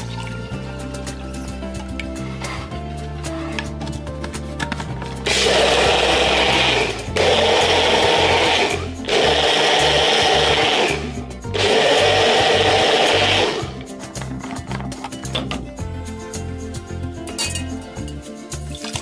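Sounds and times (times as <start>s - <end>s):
blender blending: 5.2s - 13.9s.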